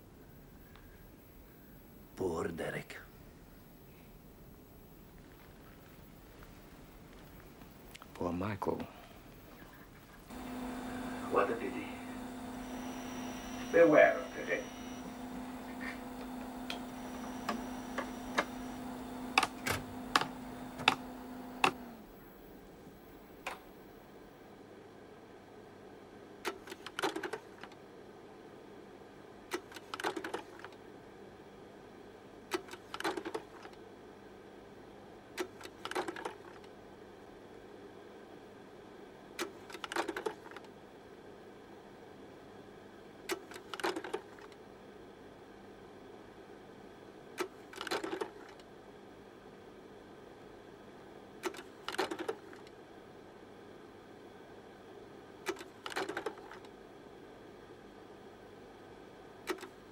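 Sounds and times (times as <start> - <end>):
faint steady hum: 0.0 - 25.9
sharp mechanical clicking: 11.3 - 23.9.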